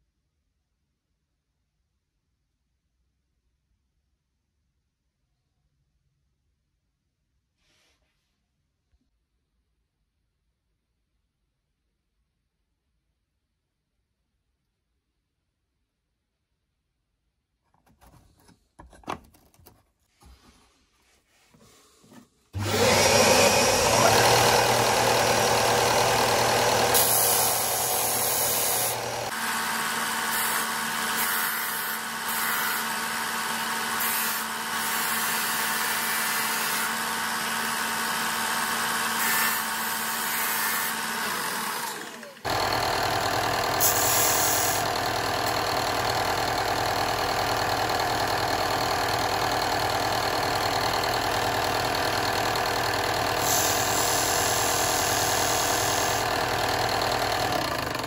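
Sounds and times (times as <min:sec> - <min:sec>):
disc sander running: 0:22.6 - 0:58.0.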